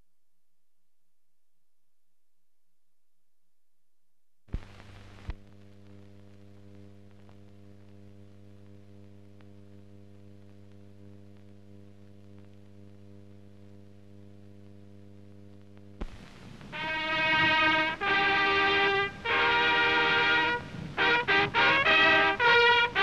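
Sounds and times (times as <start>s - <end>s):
faint crackles: 4.5s - 19.4s, 20.6s - 23.0s
film soundtrack hum and hiss: 4.5s - 23.0s.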